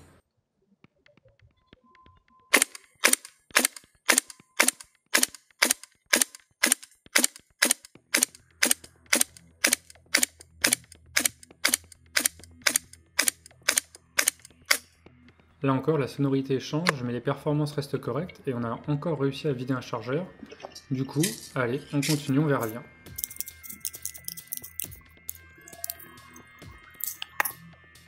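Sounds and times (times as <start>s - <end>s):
airsoft rifle firing single shots: 2.5s - 14.8s.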